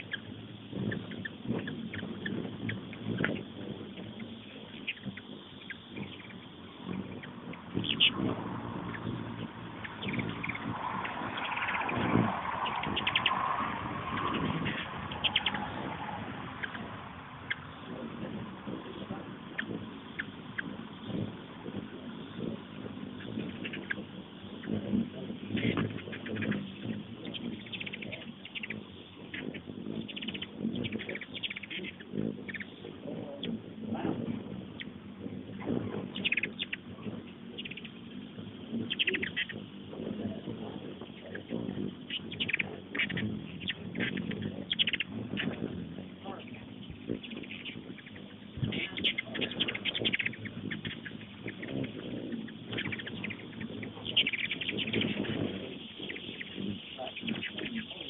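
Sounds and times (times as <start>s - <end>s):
hummingbirds chittering: 0.0s - 58.0s
low hum: 0.0s - 58.0s.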